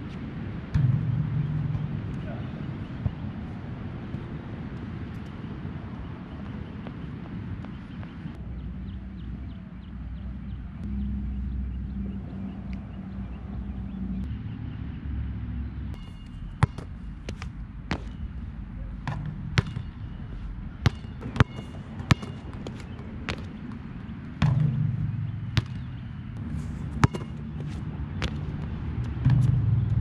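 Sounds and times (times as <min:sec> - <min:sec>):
steady low rumble: 0:00.0 - 0:30.0
basketball bouncing: 0:00.7 - 0:05.3, 0:16.0 - 0:30.0.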